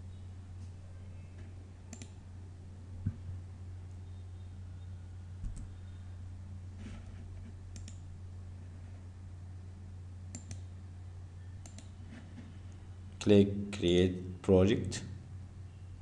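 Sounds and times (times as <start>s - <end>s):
steady low hum: 0.0s - 16.0s
computer mouse clicking: 1.9s - 2.2s, 7.7s - 8.0s, 10.3s - 10.7s, 11.6s - 12.0s.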